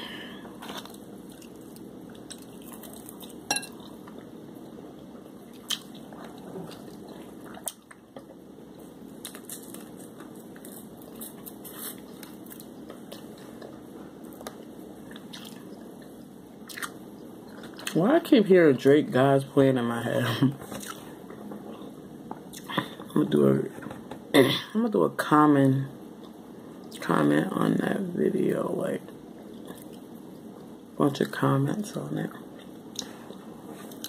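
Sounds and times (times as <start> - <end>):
person chewing: 0.5 - 4.8, 5.5 - 18.0, 20.7 - 22.9, 29.5 - 30.1, 32.6 - 34.0.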